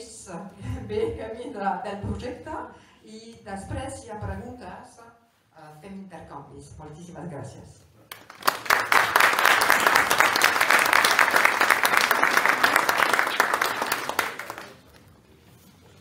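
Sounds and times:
audience applauding: 8.1s - 15.0s.

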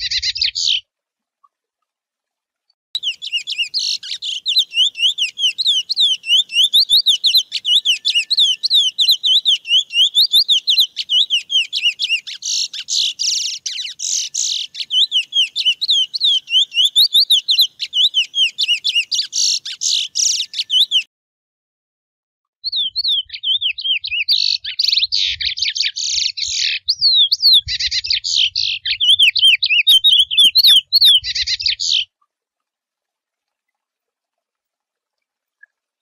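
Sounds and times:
finch singing whistled notes: 3.0s - 21.1s, 22.6s - 32.1s.

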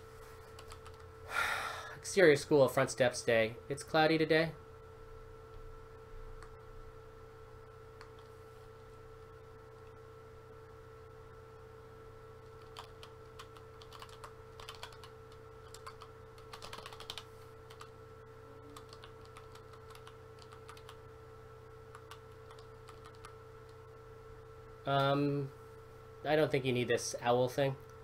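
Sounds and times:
computer keyboard typing: 0.4s - 1.1s, 8.0s - 8.3s, 12.4s - 17.9s, 18.8s - 21.0s, 21.9s - 23.8s.

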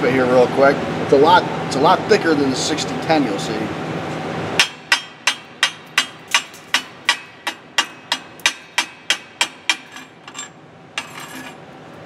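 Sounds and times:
chipping hammer striking metal: 4.6s - 10.4s.

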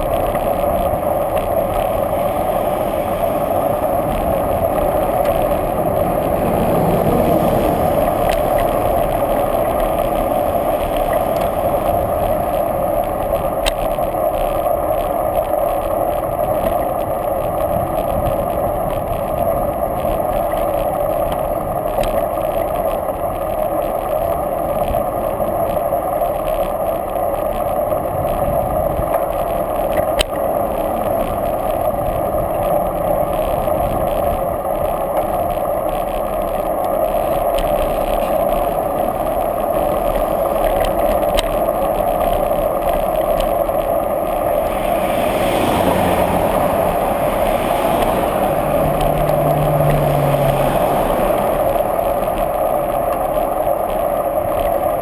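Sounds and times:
car passing: 0.0s - 13.4s, 37.7s - 53.7s
wind and road noise: 0.0s - 55.0s.

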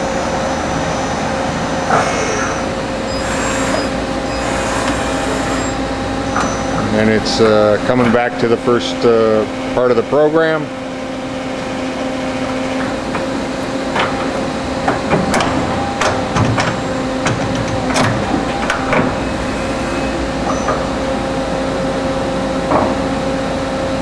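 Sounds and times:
machine hum: 0.0s - 24.0s
tool changer clanks and clicks: 14.0s - 19.2s.

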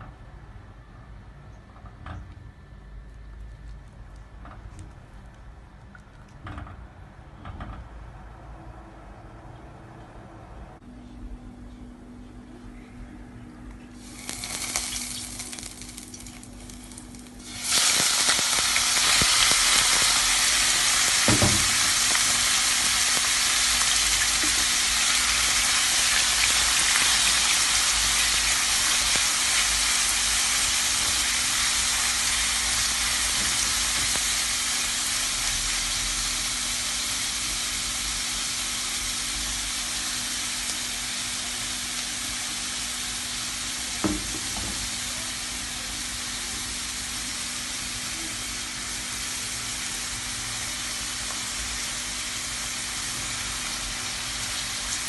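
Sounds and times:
chicken sizzling in oil: 14.0s - 55.0s.

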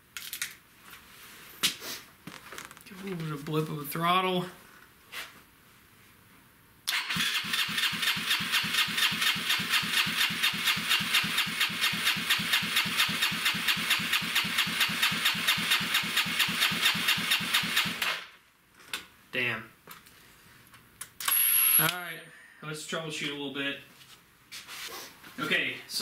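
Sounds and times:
electric starter cranking engine: 6.9s - 18.3s.

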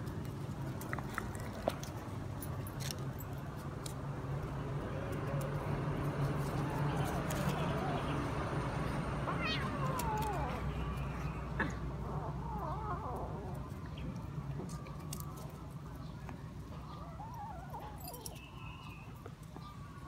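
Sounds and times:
kitten and puppies crying: 6.4s - 15.5s, 16.9s - 18.5s.

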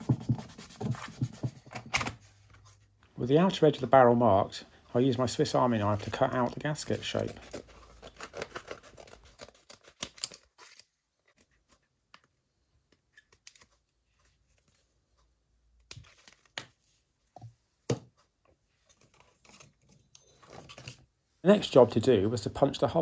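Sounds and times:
paper rustling: 5.9s - 11.9s
scissors snipping paper: 7.2s - 10.8s.

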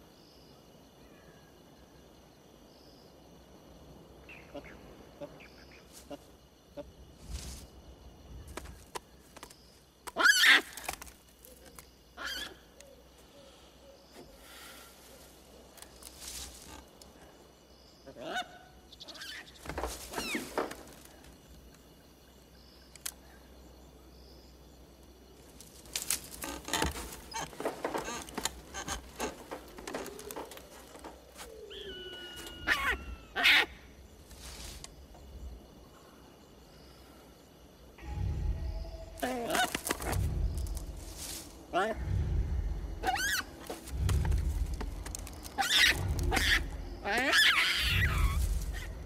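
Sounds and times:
animal cries: 31.7s - 33.8s, 45.6s - 48.9s.

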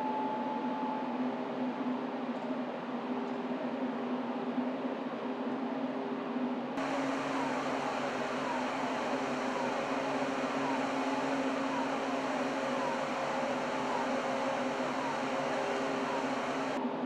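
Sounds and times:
falling whine: 6.8s - 16.8s
ship machinery hum: 6.8s - 16.8s.

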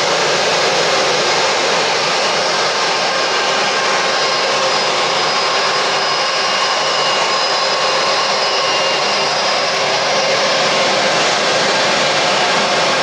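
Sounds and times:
jet engines running: 0.0s - 13.0s.

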